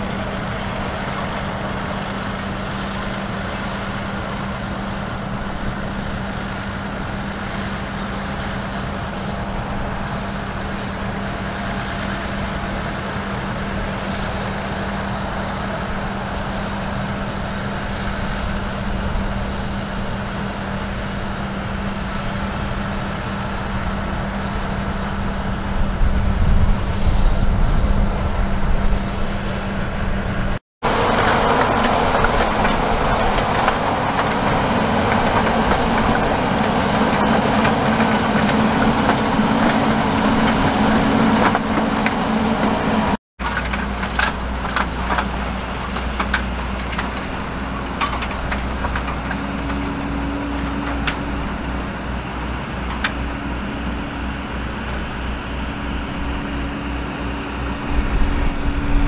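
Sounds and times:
tractor diesel engine: 0.0s - 59.0s.

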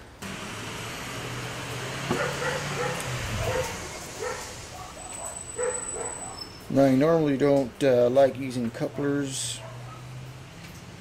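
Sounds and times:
dog whimpering: 2.2s - 6.7s.

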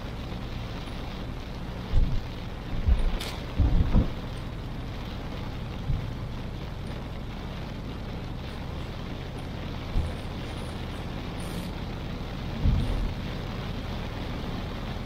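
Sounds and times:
low rumble: 0.0s - 15.0s
rain and road noise: 0.0s - 15.0s
low thumps: 1.8s - 4.4s.

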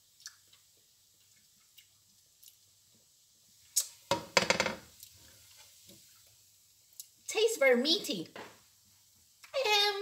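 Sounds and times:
person chewing: 0.1s - 2.7s.

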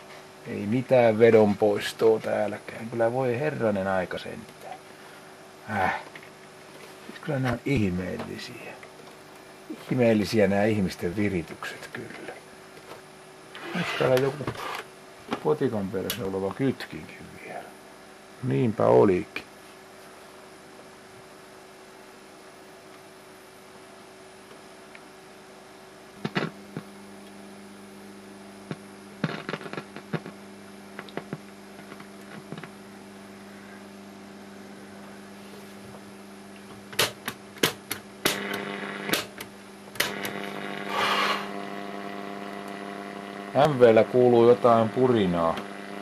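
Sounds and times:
radio mains hum: 0.0s - 46.0s
sharp clicks and crackles: 28.7s - 30.4s.

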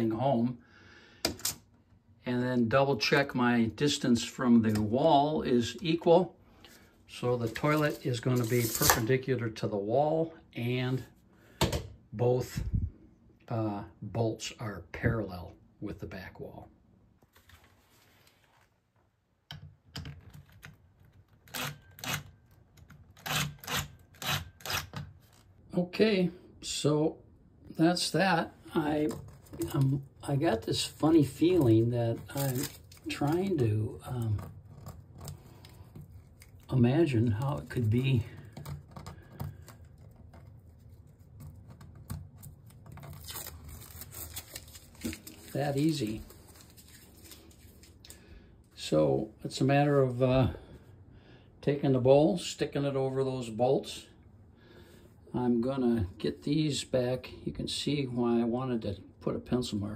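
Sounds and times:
faint rustling and handling: 4.4s - 9.2s, 17.1s - 19.2s, 28.3s - 51.0s.

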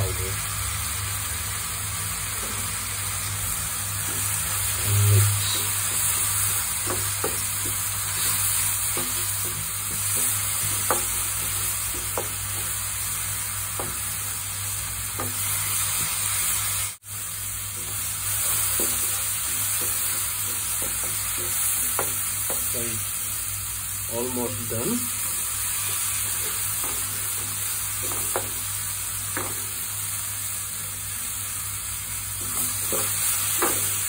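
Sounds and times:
food sizzling in a frying pan: 0.0s - 34.0s
spatula scraping and tapping pan: 4.0s - 12.9s, 13.7s - 14.2s, 15.1s - 16.2s, 17.8s - 22.8s, 25.2s - 28.7s, 29.3s - 29.8s, 32.4s - 34.0s.

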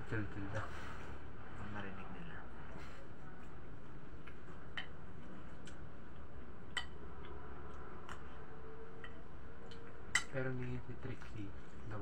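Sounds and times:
low background noise: 0.0s - 12.0s.

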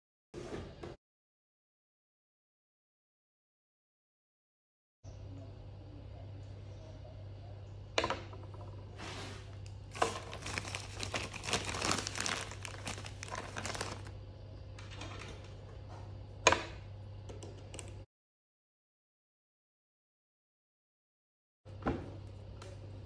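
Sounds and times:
steady low hum: 5.1s - 18.1s
crinkling and rustling: 9.6s - 14.1s.

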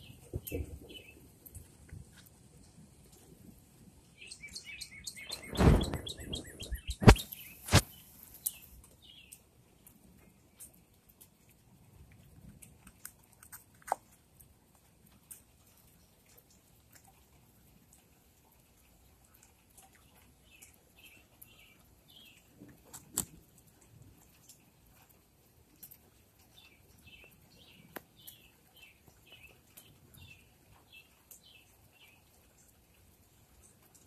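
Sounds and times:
faint bird song: 0.0s - 1.8s, 4.0s - 10.8s, 19.4s - 22.7s, 25.8s - 34.0s.

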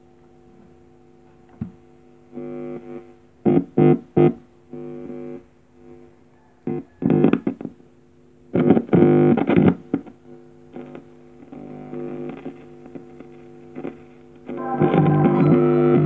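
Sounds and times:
music from small speaker: 14.6s - 16.0s.

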